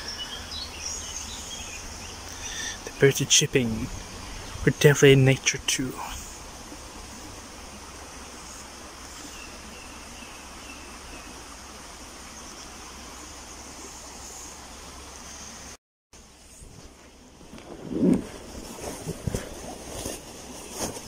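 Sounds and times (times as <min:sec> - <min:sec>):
birds chirping: 0:00.0 - 0:15.7
steady rushing hiss: 0:00.0 - 0:21.0.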